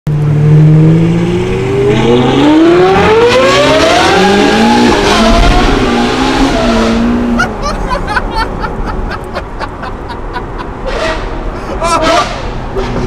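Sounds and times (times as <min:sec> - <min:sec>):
sports car engine accelerating: 0:00.1 - 0:07.6.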